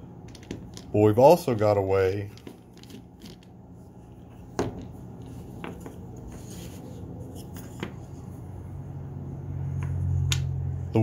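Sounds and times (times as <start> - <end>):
wooden clamp parts clicking: 0.2 - 3.6.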